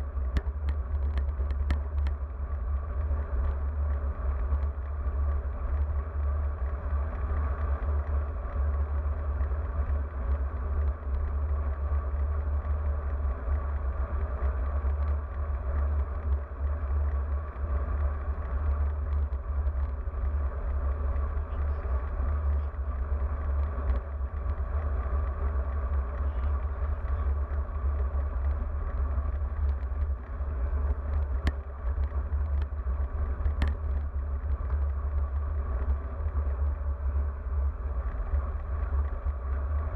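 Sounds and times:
bike tyres rolling on asphalt: 0.0 - 39.9
wind rumble on microphone: 0.0 - 39.9
faint ticks: 0.2 - 39.9.

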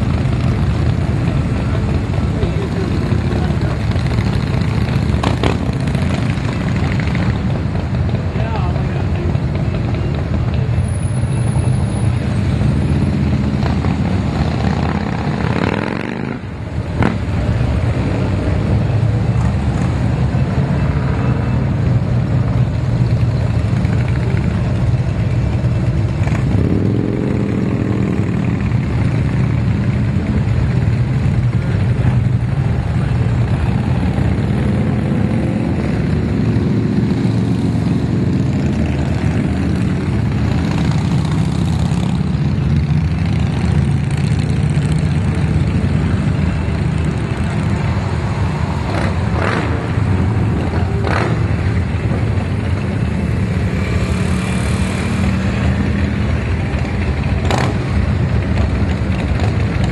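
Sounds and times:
motorcycles passing: 0.0 - 59.9
vehicle engines rumbling: 0.0 - 59.9.

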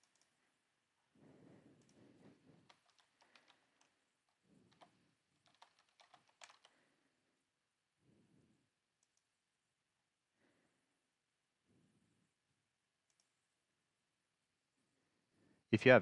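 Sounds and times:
typing on computer keyboard: 0.0 - 0.4, 2.6 - 6.8.

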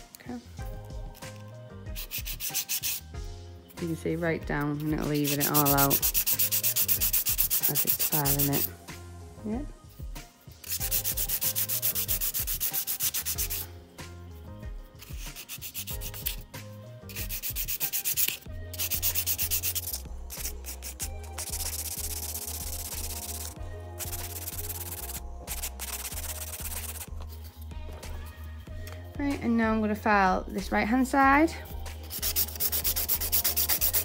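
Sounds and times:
nail file rasping: 1.1 - 3.1, 4.5 - 8.7, 10.6 - 13.7, 15.0 - 16.5, 17.1 - 27.6, 31.7 - 34.0.

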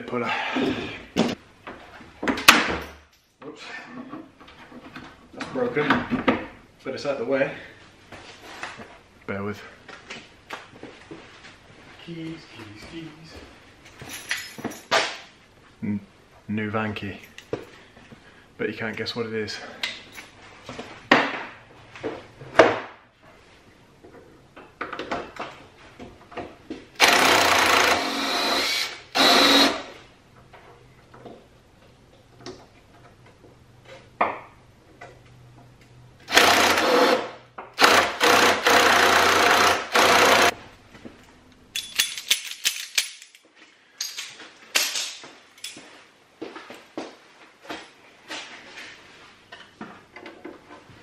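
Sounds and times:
impact wrench hammering: 37.8 - 40.6.

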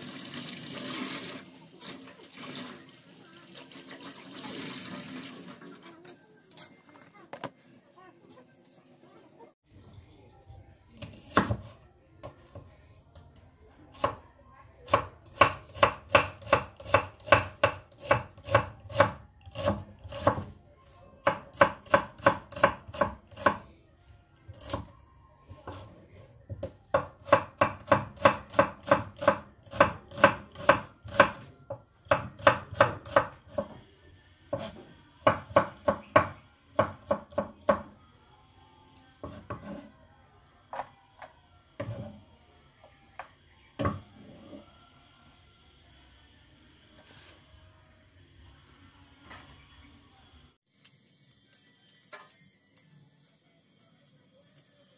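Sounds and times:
knife chopping on cutting board: 11.0 - 11.7.

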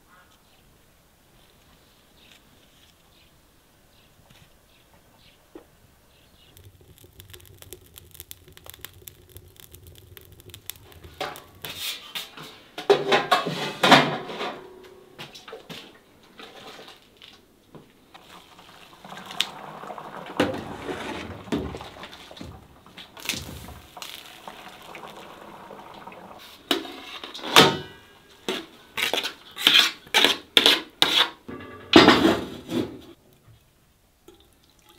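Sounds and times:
water pouring into a pot: 6.4 - 12.0, 18.1 - 28.1, 34.2 - 34.9.

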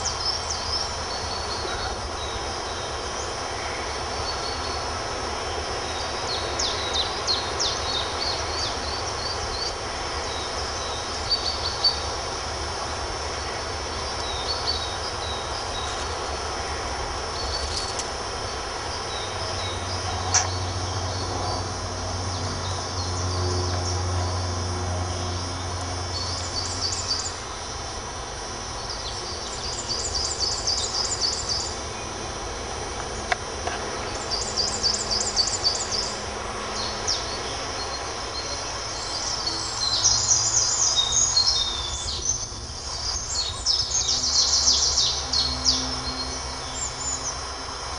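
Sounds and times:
low drone: 0.0 - 47.9
birds chirping and trilling: 17.2 - 27.7, 28.8 - 32.1, 33.9 - 47.5.

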